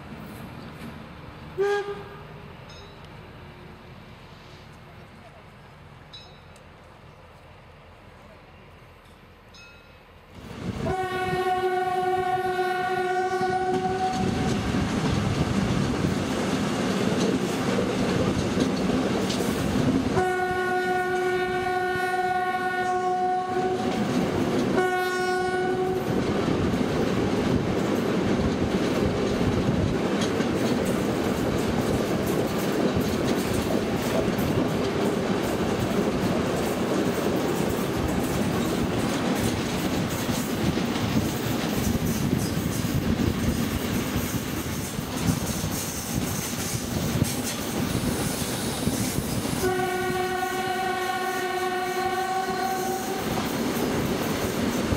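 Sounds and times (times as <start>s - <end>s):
train horn blasts: 1.6s - 2.6s, 10.8s - 14.6s, 20.1s - 24.1s, 24.7s - 26.2s, 49.6s - 53.4s
train wheels clickety-clack: 12.5s - 21.5s, 22.7s - 54.9s.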